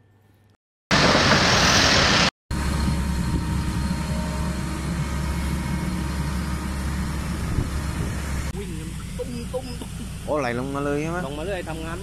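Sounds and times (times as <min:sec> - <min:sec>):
loud rushing hiss: 0:00.9 - 0:08.5
heavy diesel engines droning: 0:00.9 - 0:12.0.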